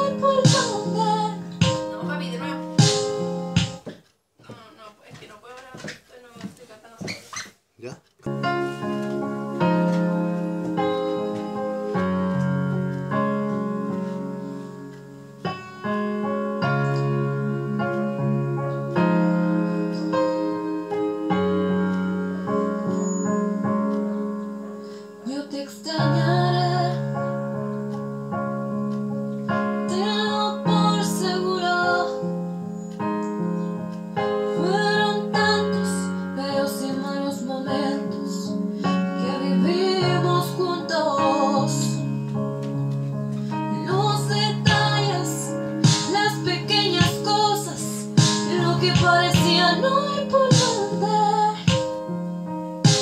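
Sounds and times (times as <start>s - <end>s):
woman singing: 0.0s - 2.8s, 10.5s - 12.3s, 16.8s - 22.8s, 25.2s - 27.2s, 29.8s - 32.3s, 34.4s - 42.2s, 43.6s - 52.0s
sustained keyboard chords: 0.0s - 3.9s, 7.8s - 53.0s.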